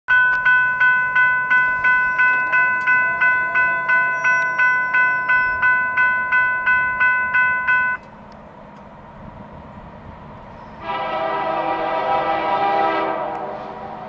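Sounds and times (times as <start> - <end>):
railroad crossing bell ringing: 0.1 - 8.2.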